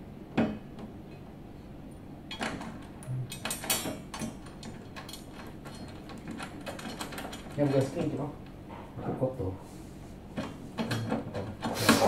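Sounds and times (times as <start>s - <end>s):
clicks and rattling taps: 2.3s - 8.6s.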